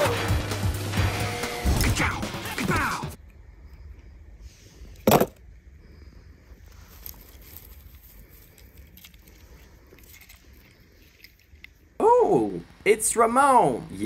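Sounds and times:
low steady hum: 0:03.2 - 0:14.0.

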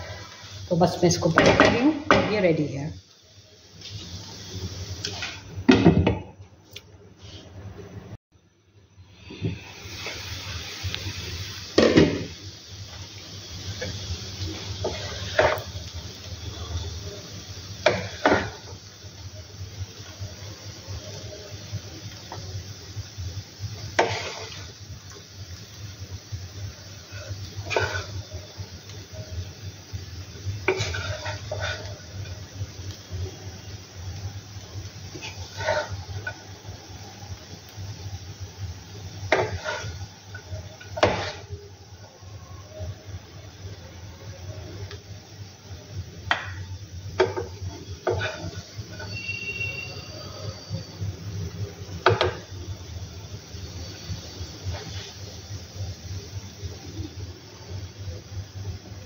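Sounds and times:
spatula stirring and scraping pan: 0:05.0 - 0:05.5, 0:13.7 - 0:15.8, 0:17.8 - 0:18.7, 0:23.8 - 0:24.8, 0:26.9 - 0:28.6, 0:29.9 - 0:33.0, 0:35.0 - 0:36.5, 0:39.0 - 0:41.6, 0:46.3 - 0:49.9, 0:54.6 - 0:55.3.

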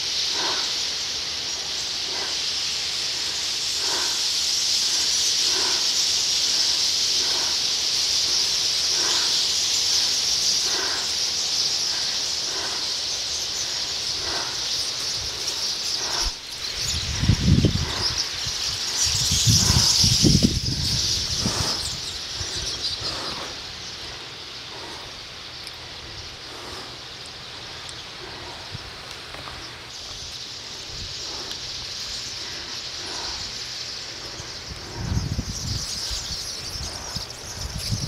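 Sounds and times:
flock of birds hissing: 0:00.0 - 0:38.0.

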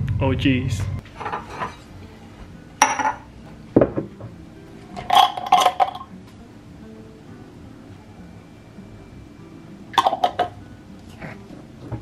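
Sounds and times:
glassware clinking: 0:02.8 - 0:04.1, 0:05.0 - 0:06.1, 0:09.9 - 0:10.6.

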